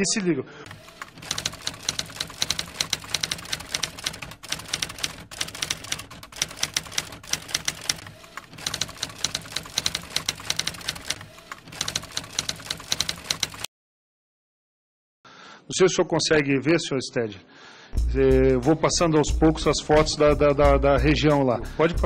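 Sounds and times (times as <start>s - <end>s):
typewriter keys clicking: 0.7s - 13.7s.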